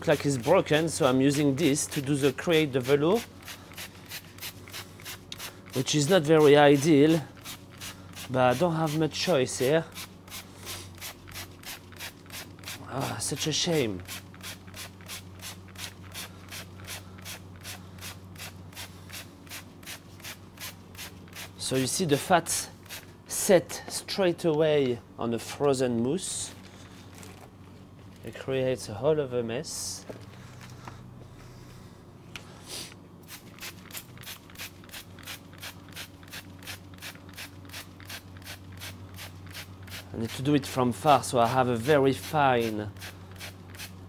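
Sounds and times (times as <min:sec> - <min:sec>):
steady low hum: 0:00.0 - 0:44.0
spray bottle spritzing: 0:33.2 - 0:40.1.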